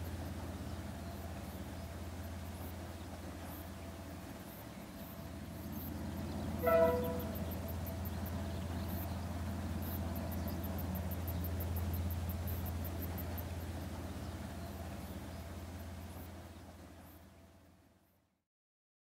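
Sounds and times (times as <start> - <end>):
locomotive engine rumble: 0.0 - 17.9
train horn toot: 6.4 - 8.3.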